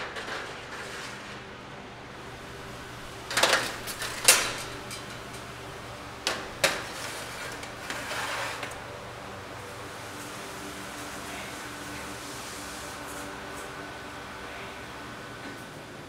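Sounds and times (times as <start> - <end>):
metal trays clanking: 2.2 - 8.9
tray scraping slide: 2.2 - 9.0.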